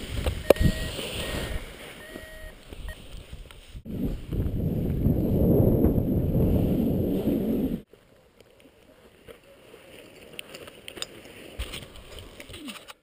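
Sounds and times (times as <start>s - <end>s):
wind buffeting microphone: 2.7s - 7.9s.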